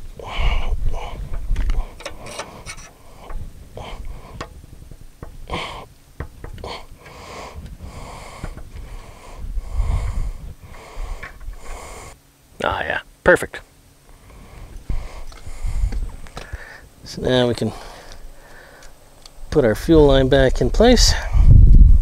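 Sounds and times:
flaring tool squeaking: 1.9 - 4.6.

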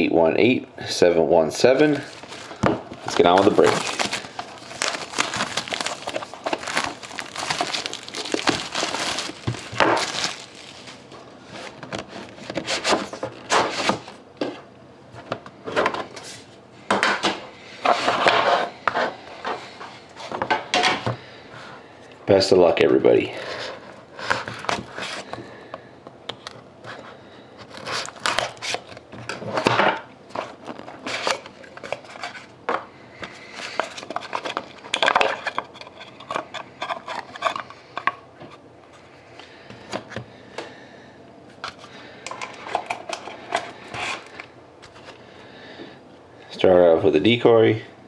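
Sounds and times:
paper rustling: 1.8 - 14.0
cardboard box handling: 2.0 - 13.3.

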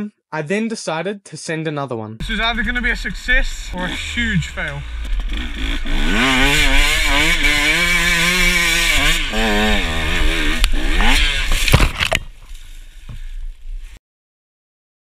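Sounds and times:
dirt bike engine revving: 2.2 - 12.0.

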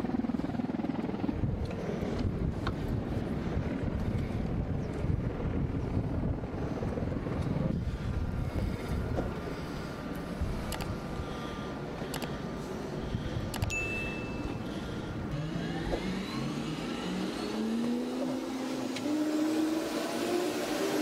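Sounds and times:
wind noise on microphone: 0.0 - 11.2
helicopter turbine whine rising: 0.0 - 21.0
sharp clicks: 10.7 - 11.0, 12.1 - 12.4, 13.5 - 13.8.

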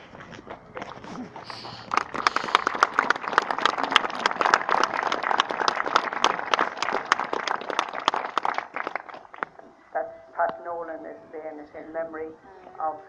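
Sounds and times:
crowd applauding: 0.8 - 9.5.

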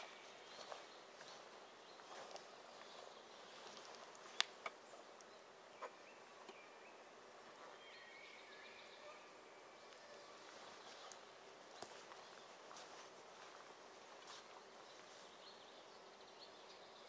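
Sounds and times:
faint bird chirps: 0.0 - 13.0.

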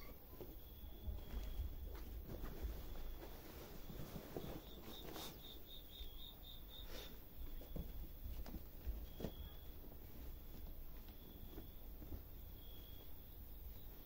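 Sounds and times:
cloth rustling: 1.2 - 5.5, 7.7 - 14.0.

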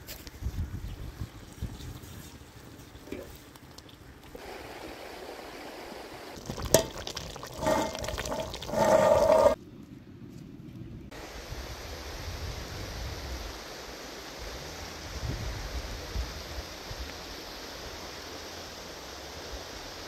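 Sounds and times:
water pouring: 6.4 - 9.6.

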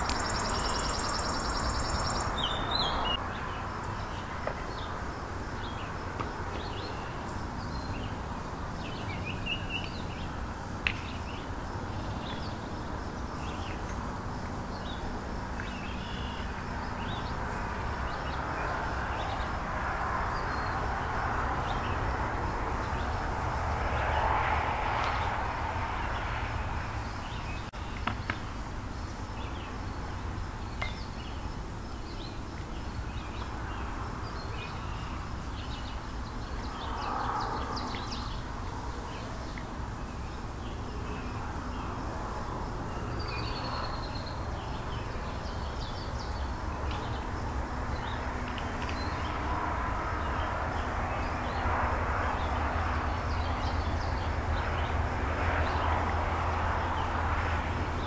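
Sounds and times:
small birds chirping: 0.0 - 5.0.

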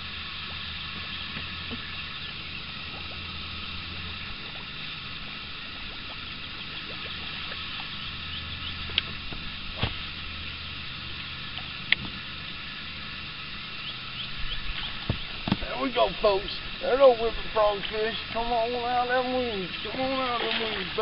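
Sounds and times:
low hum: 0.0 - 21.0
high chirring chorus: 9.5 - 21.0.

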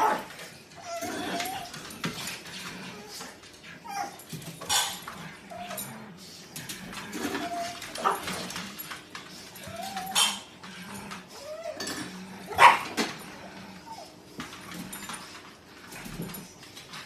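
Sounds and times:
dogs whining and yipping: 0.0 - 6.1, 6.8 - 15.2
dog barking: 12.5 - 12.9.

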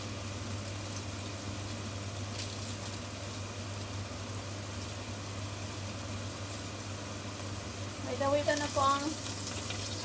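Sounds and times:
steak sizzling in frying pan: 4.7 - 10.0.

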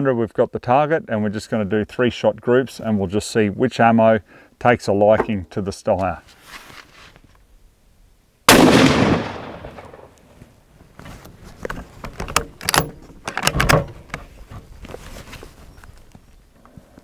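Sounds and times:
rifle shot with echo: 8.5 - 10.2
rifle bolt clicking: 12.4 - 13.8.

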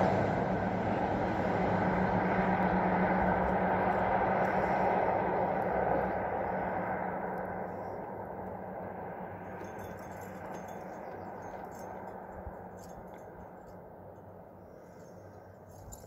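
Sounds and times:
metallic clinking of climbing gear: 9.4 - 16.0.

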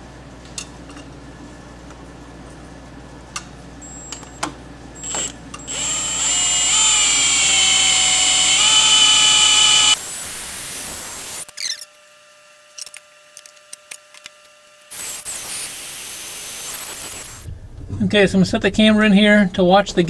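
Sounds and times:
cordless drill whining: 5.0 - 11.8.

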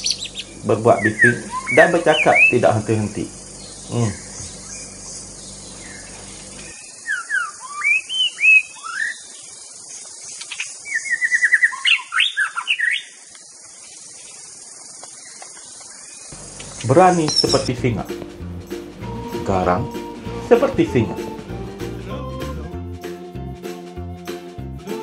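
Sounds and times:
bird singing whistled notes: 0.0 - 2.8, 3.5 - 13.2, 17.1 - 17.8.

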